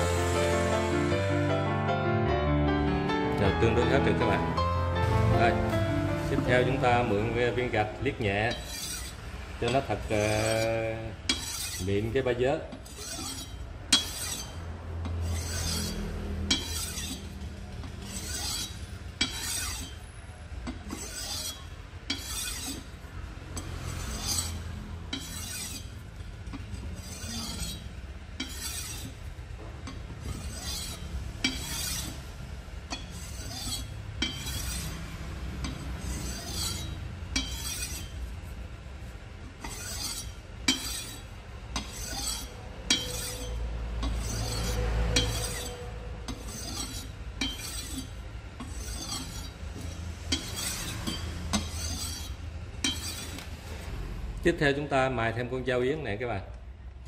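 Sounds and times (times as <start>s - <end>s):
knife scraping on brick: 6.2s - 26.0s, 26.6s - 29.3s, 29.9s - 38.3s, 39.5s - 53.9s.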